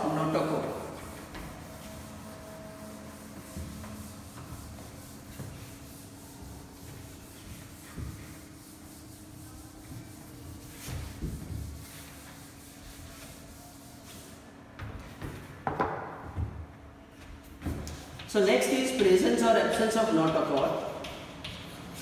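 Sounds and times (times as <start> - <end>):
duster rubbing on chalkboard: 0.0 - 15.4.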